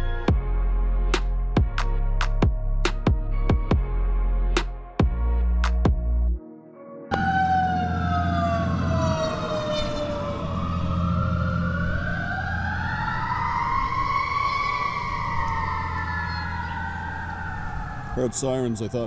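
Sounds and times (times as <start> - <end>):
siren wailing: 0.0 - 1.0, 6.7 - 19.0.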